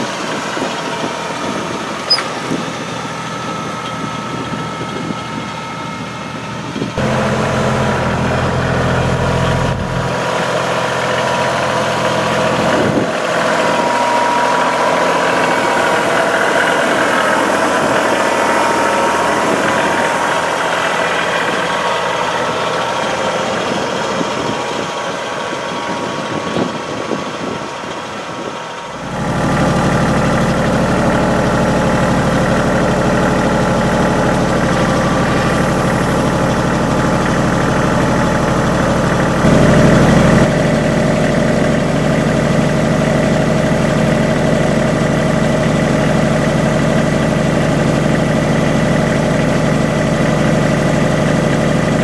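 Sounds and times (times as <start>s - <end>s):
tractor diesel engine running: 0.0s - 52.0s.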